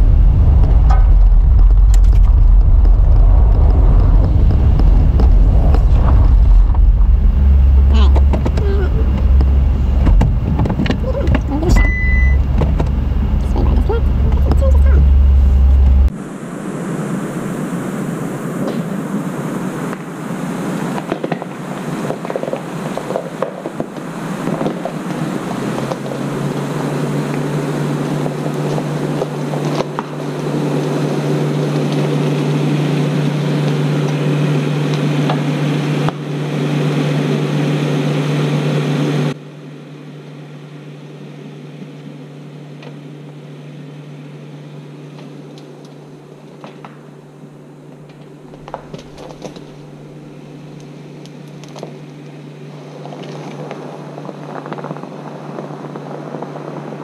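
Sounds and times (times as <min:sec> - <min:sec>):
tyre and wind noise: 0:00.0 - 0:35.7
engine drone: 0:00.0 - 0:57.0.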